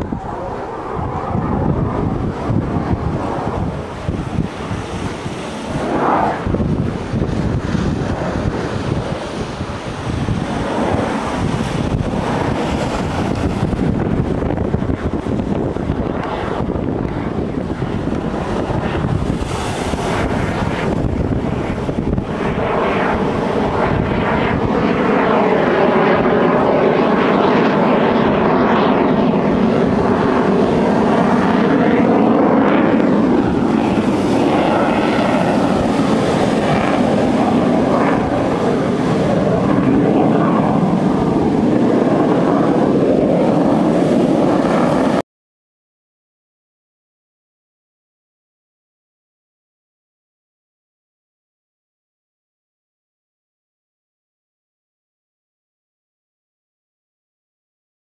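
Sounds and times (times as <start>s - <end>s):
propeller aircraft engines droning: 0.0s - 45.2s
steady rushing noise: 0.0s - 45.2s
wind noise on microphone: 0.0s - 45.2s.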